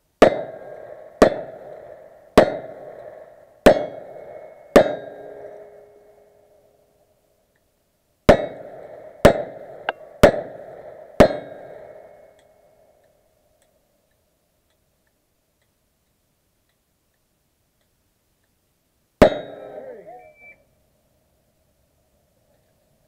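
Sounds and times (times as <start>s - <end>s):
steel target ringing: 3.6s - 6.4s, 11.2s - 12.3s, 19.2s - 20.2s.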